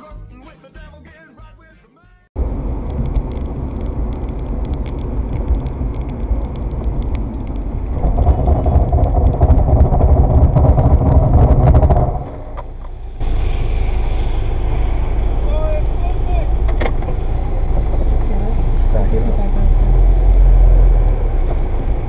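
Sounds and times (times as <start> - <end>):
car engine and road noise: 2.4 - 22.0.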